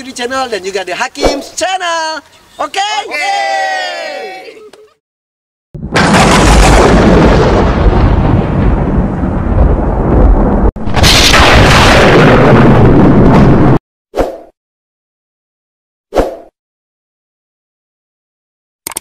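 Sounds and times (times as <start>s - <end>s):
deep rumbling blasts: 5.8s - 13.8s.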